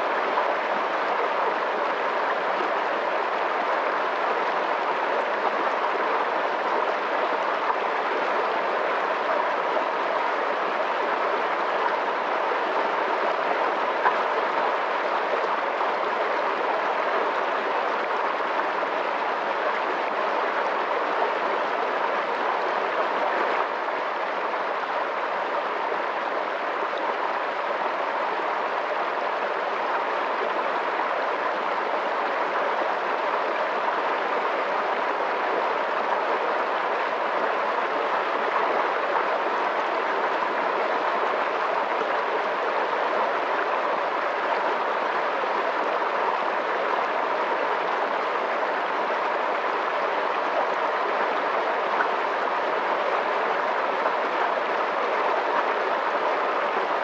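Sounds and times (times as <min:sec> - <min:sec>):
fast-flowing water rushing: 0:00.0 - 0:57.0.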